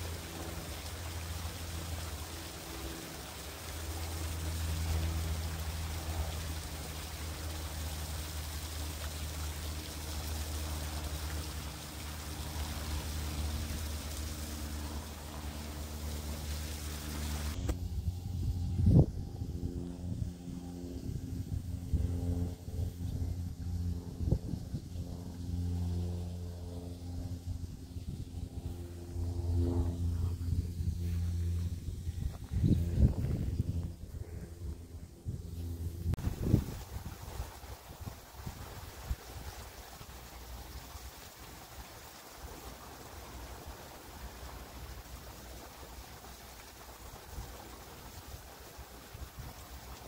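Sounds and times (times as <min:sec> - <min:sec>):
water stream splashing on ground: 0:00.0 - 0:17.8, 0:36.2 - 0:50.0
low steady motor hum: 0:00.0 - 0:50.0
wind rumble on microphone: 0:17.4 - 0:40.7, 0:47.0 - 0:50.0.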